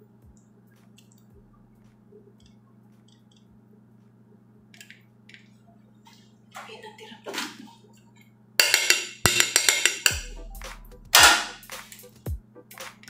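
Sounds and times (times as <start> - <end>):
deep booming bass thuds: 10.1 - 11.7.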